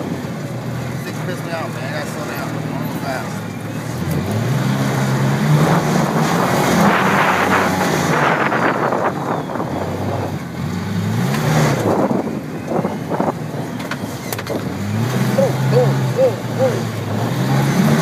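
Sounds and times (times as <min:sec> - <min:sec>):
off-road vehicle engine revving: 0:00.0 - 0:18.0.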